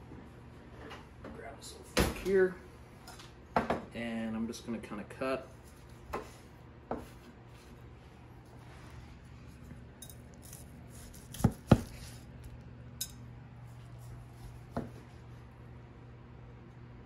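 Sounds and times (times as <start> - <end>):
knife slicing steak: 10.3 - 12.4.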